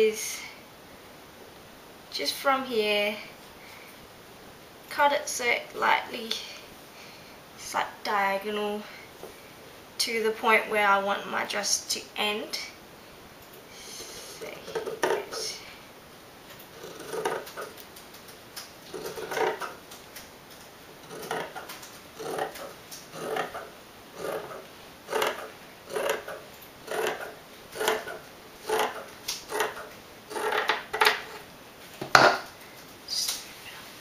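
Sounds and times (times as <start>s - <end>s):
scissors snipping fabric: 16.8s - 17.8s, 21.1s - 30.7s.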